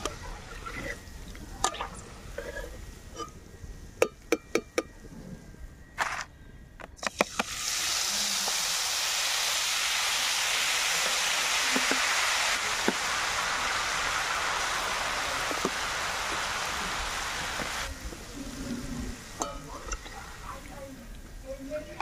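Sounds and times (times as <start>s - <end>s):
batter sizzling in hot oil: 7.0s - 20.7s.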